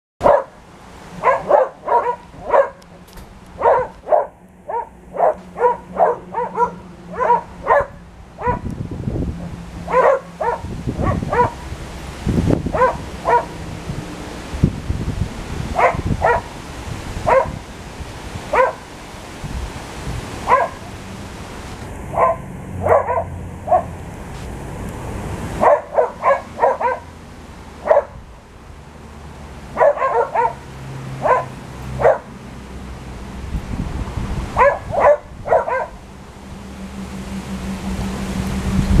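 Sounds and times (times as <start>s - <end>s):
dogs barking in play: 0.2s - 8.7s, 9.5s - 11.8s, 12.6s - 13.8s, 15.6s - 17.7s, 18.4s - 19.0s, 20.4s - 21.1s, 21.9s - 24.0s, 25.5s - 27.2s, 27.8s - 28.3s, 29.6s - 32.5s, 34.4s - 36.2s.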